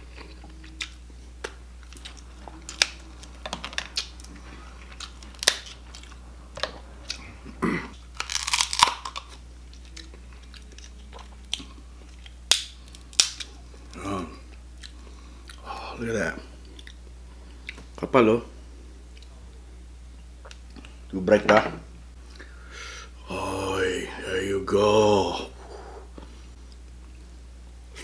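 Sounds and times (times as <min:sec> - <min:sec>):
person chewing: 0:00.0 - 0:15.8, 0:16.6 - 0:17.9.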